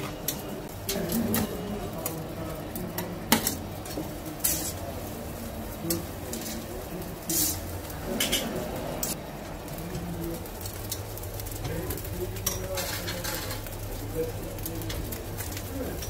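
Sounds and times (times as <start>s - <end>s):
murmuring voices: 0.0s - 16.0s
metal skewers clinking: 10.6s - 13.8s.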